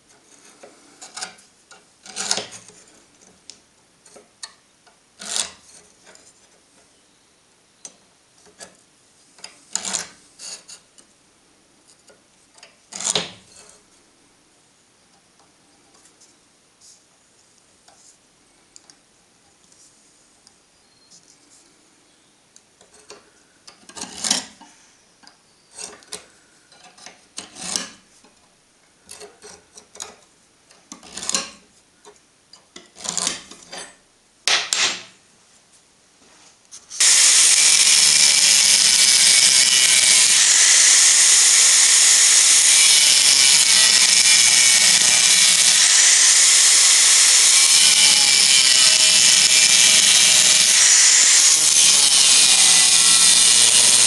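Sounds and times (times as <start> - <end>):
scriber scratching steel: 36.8 - 54.0
cut-off disc grinding steel: 37.0 - 54.0.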